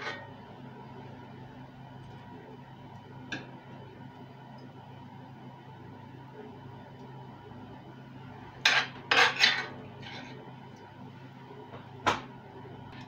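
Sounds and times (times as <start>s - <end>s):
metal spoon scraping iron skillet: 0.0s - 0.3s, 8.7s - 10.4s
steady low hum: 0.0s - 13.0s.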